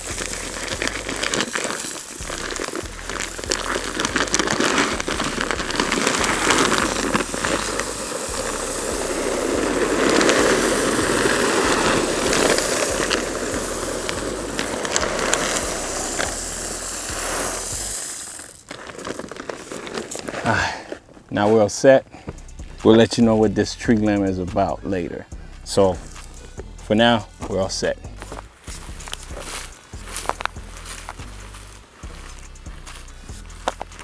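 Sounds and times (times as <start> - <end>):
branches rustling and snapping: 0.0 - 17.1.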